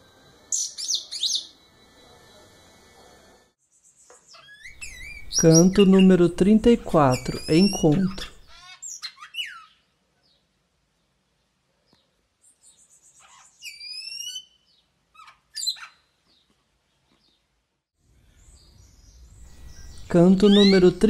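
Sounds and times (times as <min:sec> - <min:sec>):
bird singing whistled notes: 0:00.5 - 0:01.6, 0:03.8 - 0:06.4, 0:07.1 - 0:09.8, 0:12.6 - 0:14.8, 0:18.4 - 0:21.0.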